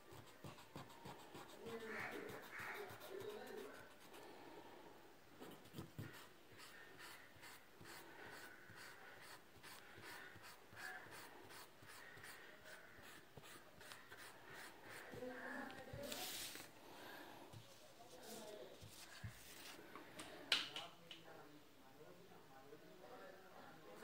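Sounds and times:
pencil rubbing on paper: 0.1s - 4.2s, 5.4s - 16.7s.

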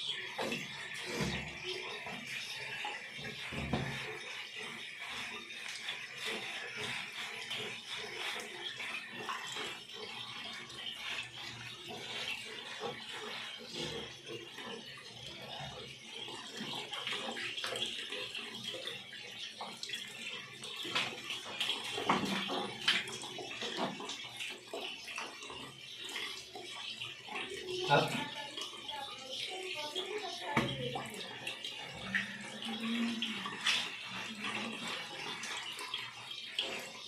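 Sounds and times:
hands scrubbing wet fur: 0.2s - 19.0s, 29.4s - 37.0s.

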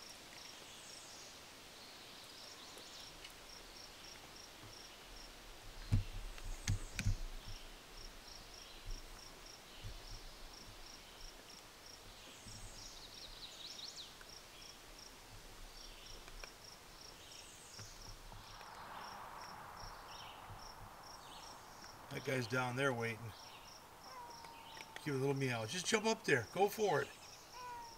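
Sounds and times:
insect chirping: 0.0s - 27.9s
low thumps: 5.7s - 7.7s.

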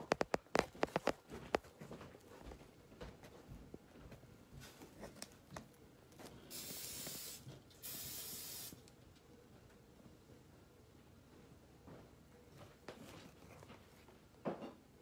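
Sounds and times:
bursts of hiss: 6.5s - 8.8s.

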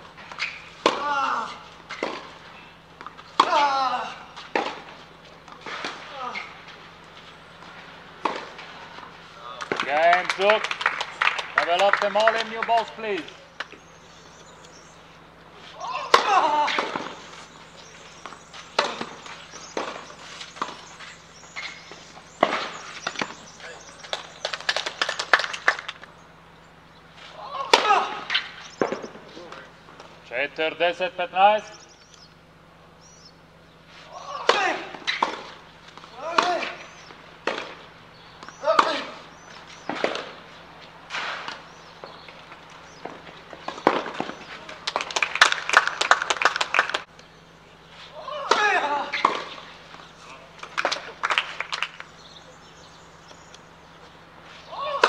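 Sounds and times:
rackets hitting tennis ball: 0.1s - 30.7s, 33.8s - 47.2s, 48.0s - 55.0s
crowd clapping: 9.5s - 13.0s, 23.8s - 26.1s, 44.7s - 47.1s, 50.5s - 52.2s.

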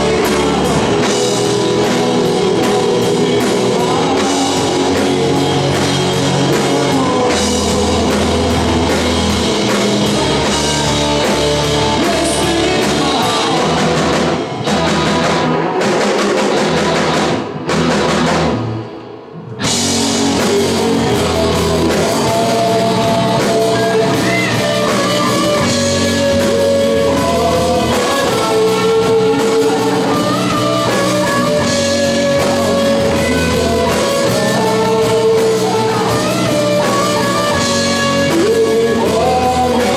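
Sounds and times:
person singing: 0.0s - 17.1s, 19.6s - 39.9s
rock band playing: 0.0s - 39.9s.

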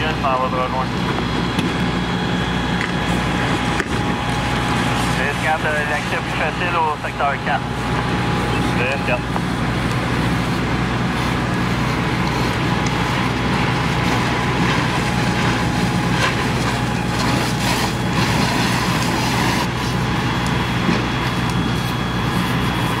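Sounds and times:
faint steady whine: 0.0s - 23.0s
fire truck engines droning: 0.0s - 23.0s.

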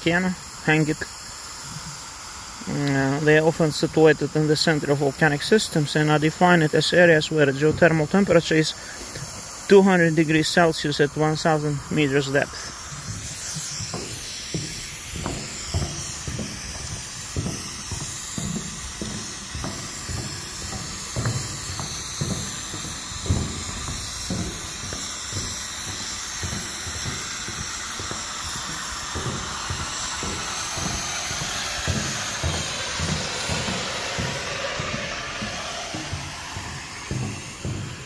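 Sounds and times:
steam hissing from a vent: 0.0s - 38.0s
low thuds: 12.9s - 38.0s.

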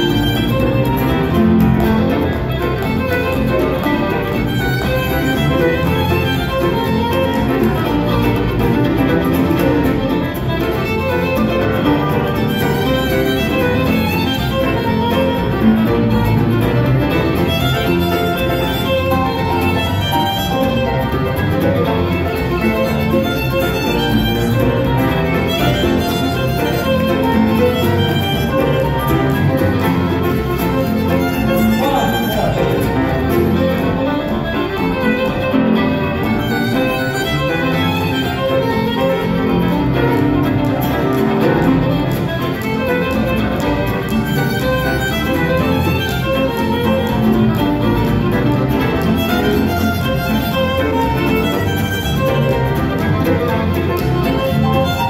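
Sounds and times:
acoustic band playing: 0.0s - 55.0s
fiddle melody: 0.0s - 55.0s.

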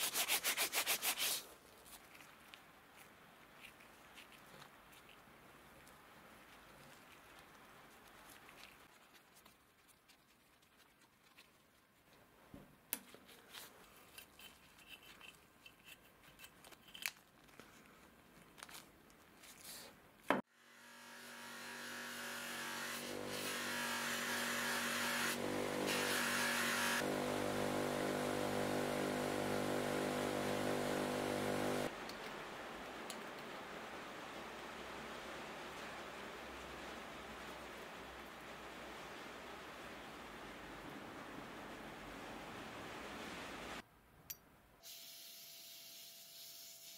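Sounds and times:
gloved hands handling wire: 12.9s - 20.4s
bench grinder humming: 20.7s - 31.9s.

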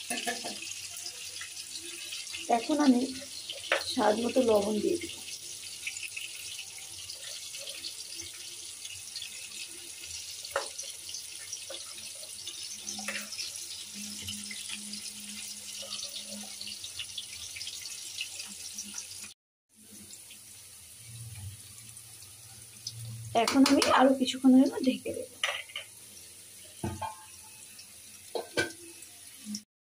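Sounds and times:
rice simmering with hiss: 0.0s - 29.7s.

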